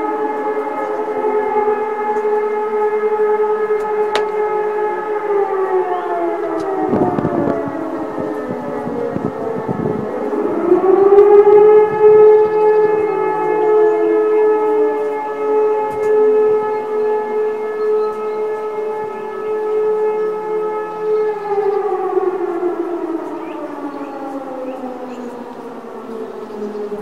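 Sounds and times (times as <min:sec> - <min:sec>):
distant motor siren: 0:00.0 - 0:27.0
motor siren wailing: 0:00.0 - 0:27.0.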